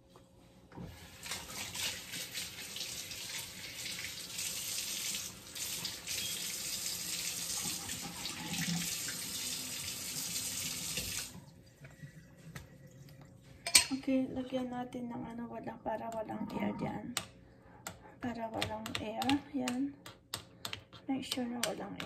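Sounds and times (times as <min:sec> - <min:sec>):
water splashing into sink: 0:00.9 - 0:13.3
kitchen faucet running: 0:00.9 - 0:13.8.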